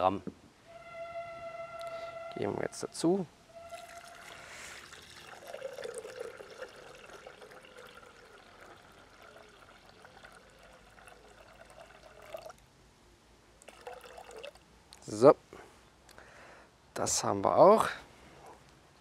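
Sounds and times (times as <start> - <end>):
water pouring into a steel bowl: 3.6 - 12.6, 13.6 - 14.6.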